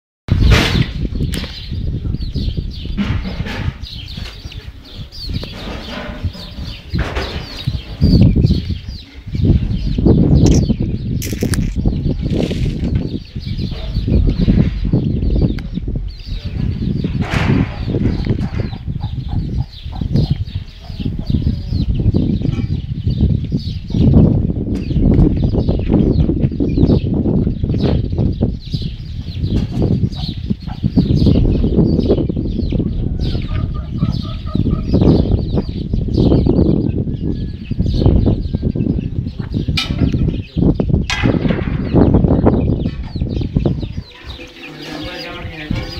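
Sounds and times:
chicks cheeping: 0.3 - 45.9
low rumble on microphone: 0.3 - 45.9
hens clucking: 32.8 - 35.0, 43.4 - 45.9.

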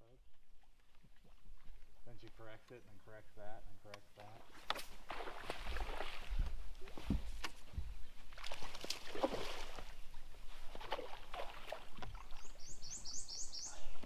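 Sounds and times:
water splashing at boat side: 4.2 - 7.6, 8.3 - 12.7
bird chirping rapidly: 12.4 - 14.0.

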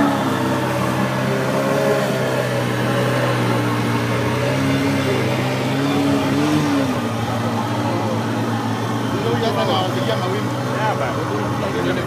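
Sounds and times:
outboard boat motor droning: 0.0 - 12.0
water rushing from hull: 0.0 - 12.0.

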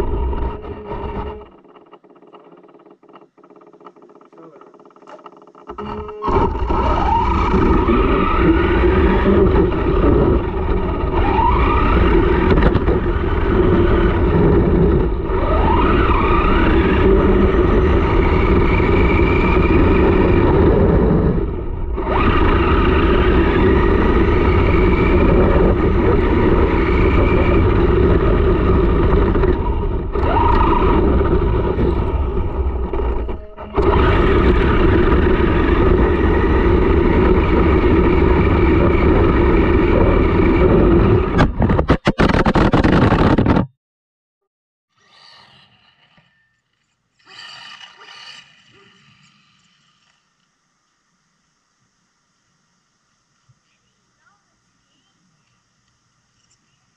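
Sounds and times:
electric motor whine: 0.0 - 2.8, 3.6 - 41.6
rc car tyres rumbling on asphalt: 0.0 - 43.5.

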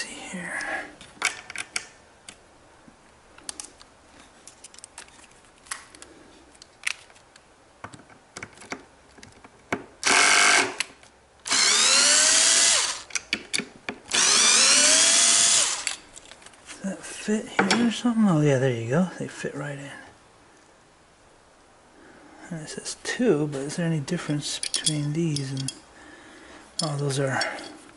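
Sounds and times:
parts clicking: 3.3 - 14.7, 24.5 - 25.8
cordless drill driving a screw: 10.0 - 10.8, 11.5 - 13.1, 14.1 - 16.0.

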